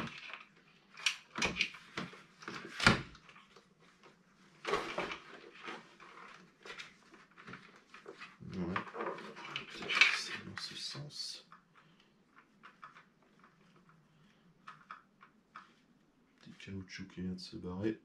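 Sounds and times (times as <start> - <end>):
plastic parts clicking and knocking: 0.0 - 3.6, 11.5 - 15.8.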